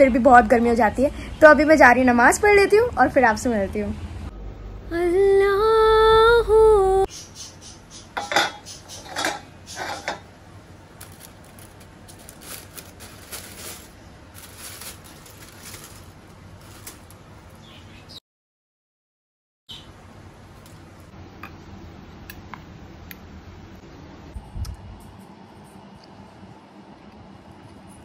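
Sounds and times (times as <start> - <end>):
person singing: 4.8 - 7.1
aluminium foil crinkling: 11.0 - 17.5.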